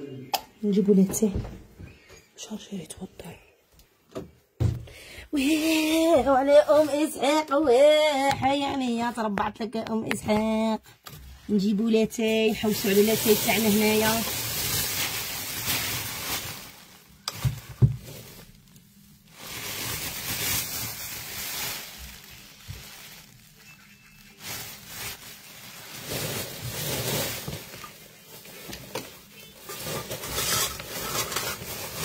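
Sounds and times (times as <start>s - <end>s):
plastic bags rustling: 11.1s - 32.0s.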